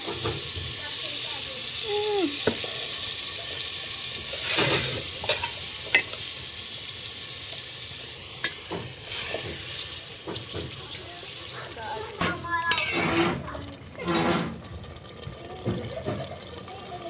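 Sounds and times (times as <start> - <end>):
food sizzling in a pot: 0.0 - 17.0.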